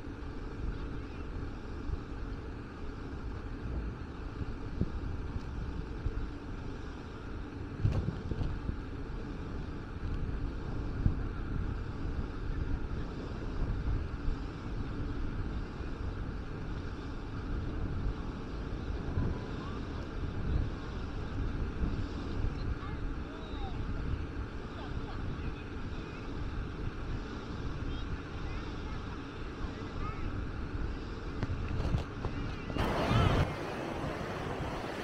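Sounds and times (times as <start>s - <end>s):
low outdoor rush: 0.0s - 35.0s
wind buffeting microphone: 0.0s - 35.0s.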